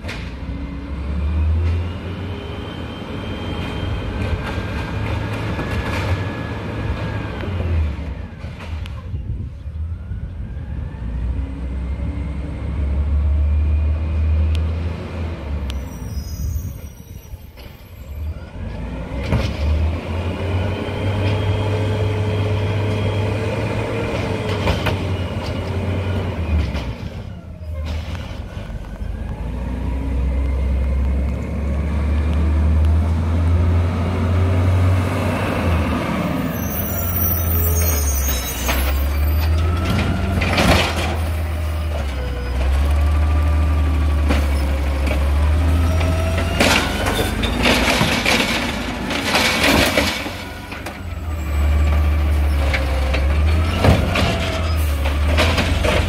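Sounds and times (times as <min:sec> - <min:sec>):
garbage truck engine revving: 0:18.4 - 0:56.0.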